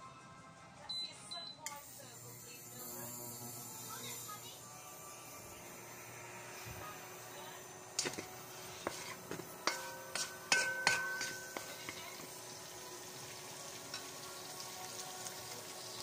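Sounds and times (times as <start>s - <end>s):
metal utensil tapping frying pan: 8.0s - 12.4s, 13.8s - 14.2s.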